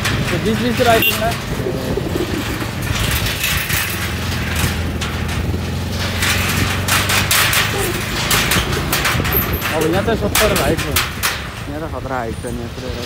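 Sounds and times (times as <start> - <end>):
motorcycle engine running: 0.0 - 11.6.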